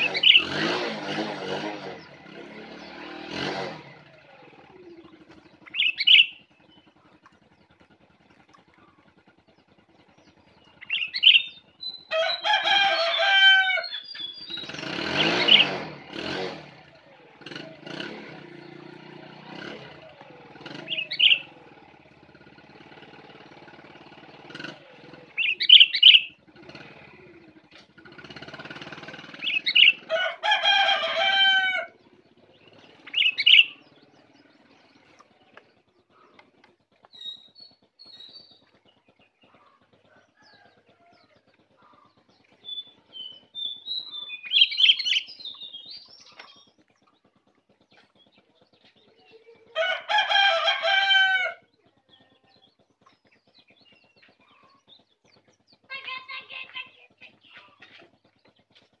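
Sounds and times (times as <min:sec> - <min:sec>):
songbird chirping: 0:00.0 - 0:00.8, 0:01.5 - 0:15.8, 0:17.0 - 0:59.0.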